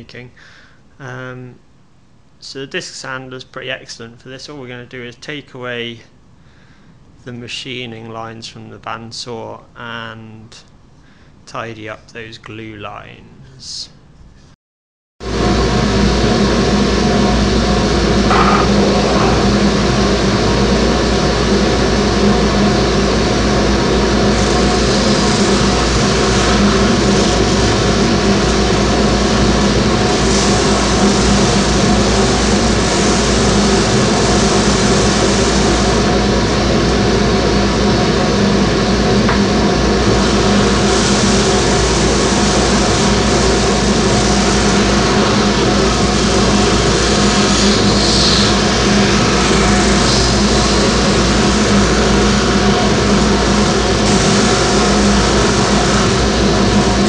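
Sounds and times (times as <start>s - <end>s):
disc sander running: 15.4s - 57.0s
wood sanding hiss: 24.3s - 36.1s, 40.1s - 57.0s.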